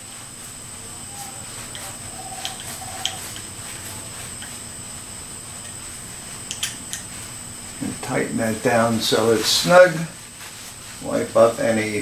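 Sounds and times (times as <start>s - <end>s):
background hiss: 0.0s - 12.0s
high-pitched whine: 0.0s - 12.0s
paper towel rustling: 7.1s - 12.0s.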